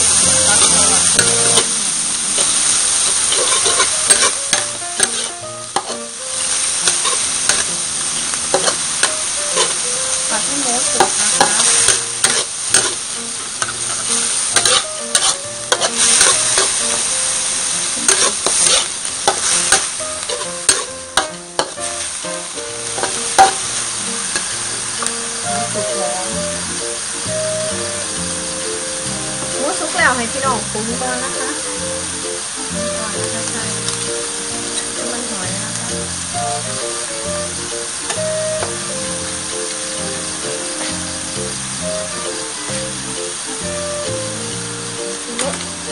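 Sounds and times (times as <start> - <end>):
meat sizzling in oil: 0.0 - 45.9
metal spatula scraping pan: 0.2 - 1.8, 2.4 - 6.1, 6.8 - 7.8, 8.5 - 13.0, 13.6 - 17.0, 18.0 - 21.9, 22.9 - 23.7.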